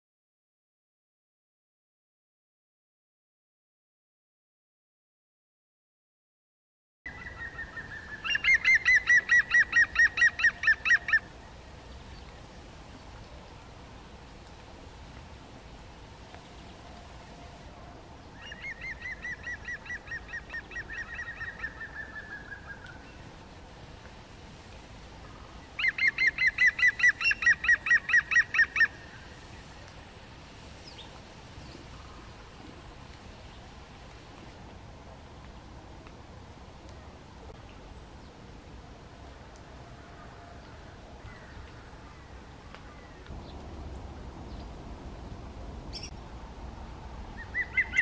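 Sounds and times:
woodpecker calling: 7.2 - 11.3, 25.2 - 29.1.

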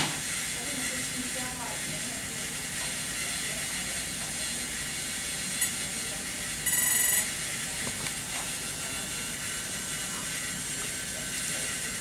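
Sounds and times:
electronic beeps: 6.6 - 7.3.

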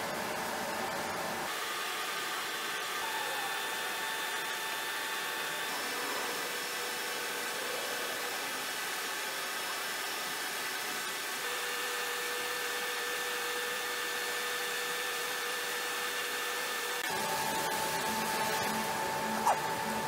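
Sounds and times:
faint hum: 17.1 - 20.0.

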